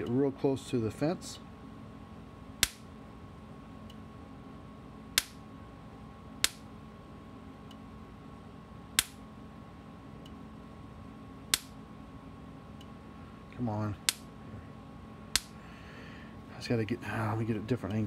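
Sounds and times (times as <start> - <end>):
electric fence spark snaps: 2.6 - 2.9, 5.2 - 5.4, 6.4 - 6.7, 9.0 - 9.2, 11.5 - 11.8, 14.0 - 14.3, 15.3 - 15.6.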